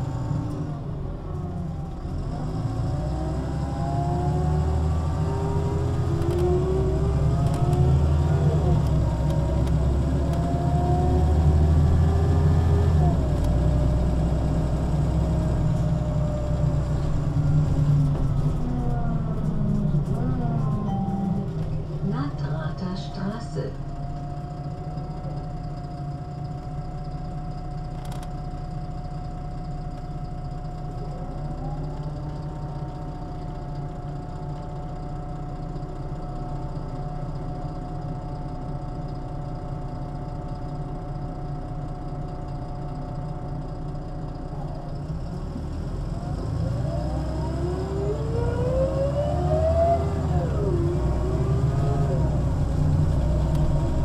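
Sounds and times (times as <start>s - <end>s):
bus diesel engine: 0.0s - 54.0s.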